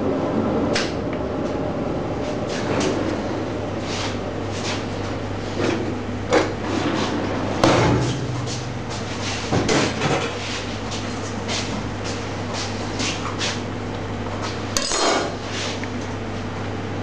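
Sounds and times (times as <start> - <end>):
steady low hum: 0.0 - 17.0
metal trays and utensils clanking: 14.8 - 15.4.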